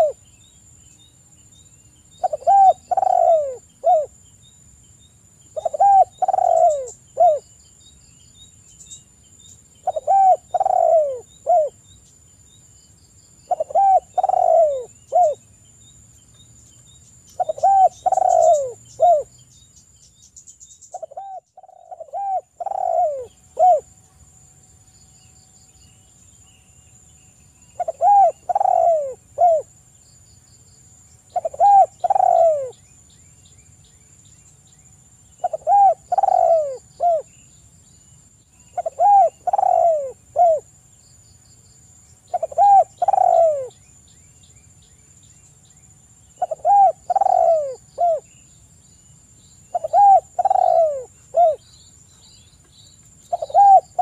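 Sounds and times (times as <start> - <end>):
dove cooing: 0.0 - 0.2, 2.2 - 4.1, 5.6 - 7.4, 9.8 - 11.8, 13.5 - 15.4, 17.4 - 19.3, 20.9 - 23.9, 27.8 - 29.7, 31.3 - 32.8, 35.4 - 37.3, 38.7 - 40.7, 42.3 - 43.7, 46.4 - 48.3, 49.7 - 51.7, 53.3 - 54.0.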